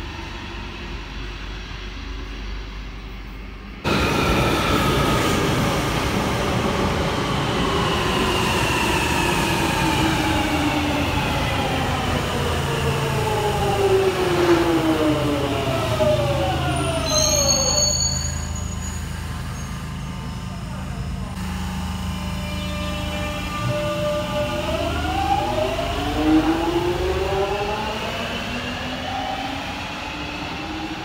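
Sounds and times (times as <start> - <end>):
train motor whine: 13.8 - 27.0
brake squeal: 16.8 - 21.3.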